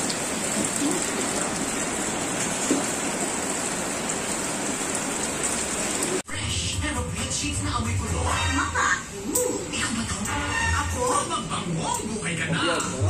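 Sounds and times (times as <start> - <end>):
steady rain falling: 0.0 - 6.2.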